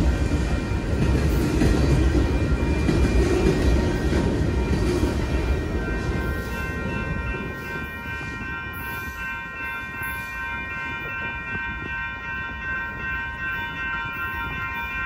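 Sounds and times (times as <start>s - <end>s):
train rumbling past: 0.0s - 15.0s.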